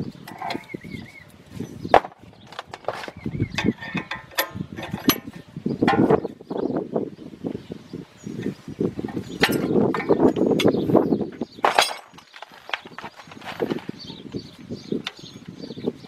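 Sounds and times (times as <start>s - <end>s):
metal clamp clicking and rattling: 3.6s - 6.1s.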